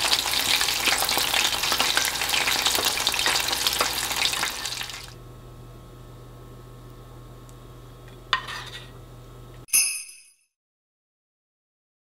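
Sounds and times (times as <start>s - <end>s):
food deep-frying in oil: 0.0s - 5.2s.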